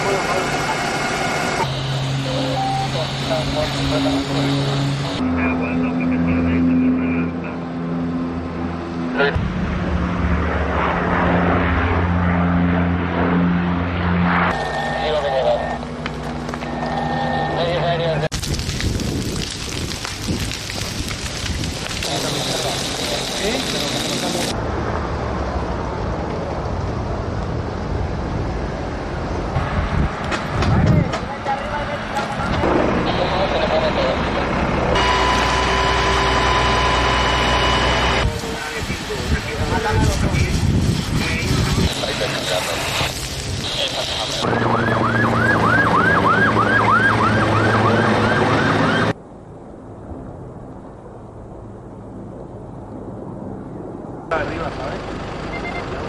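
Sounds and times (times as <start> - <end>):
emergency siren wailing: 0.0 - 6.0, 11.9 - 18.3, 32.6 - 39.4, 43.8 - 49.2
helicopter rotor and engine: 0.0 - 18.2, 31.1 - 40.5, 51.8 - 56.0
steady rushing noise: 0.0 - 55.4.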